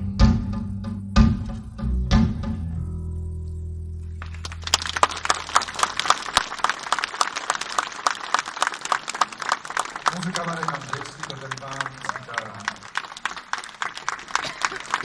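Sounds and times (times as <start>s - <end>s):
audience clapping: 4.2s - 15.0s.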